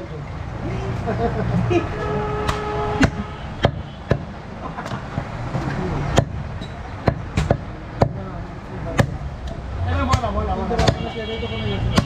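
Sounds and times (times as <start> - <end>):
cleaver chopping meat and bone: 2.4 - 5.0, 6.1 - 6.4, 7.0 - 8.2, 9.0 - 9.2, 10.1 - 11.1.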